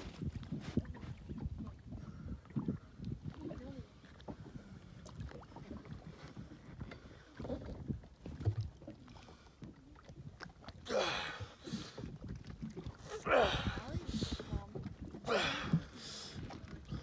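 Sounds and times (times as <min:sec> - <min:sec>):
light wind: 0:00.0 - 0:17.0
water lapping against boat hull: 0:00.0 - 0:17.0
breathy vocal sound: 0:10.9 - 0:12.0, 0:13.1 - 0:14.5, 0:15.2 - 0:16.3.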